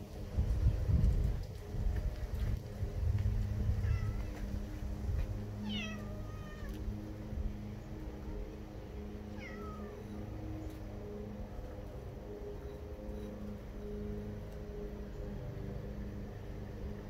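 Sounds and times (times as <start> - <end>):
steady low hum: 0.0 - 17.0
cat meowing: 3.8 - 4.4, 5.6 - 6.8, 9.4 - 10.0.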